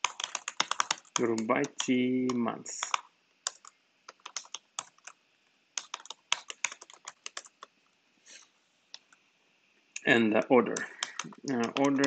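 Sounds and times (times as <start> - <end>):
computer keyboard typing: 0.0 - 5.2, 5.8 - 7.7, 10.7 - 12.0.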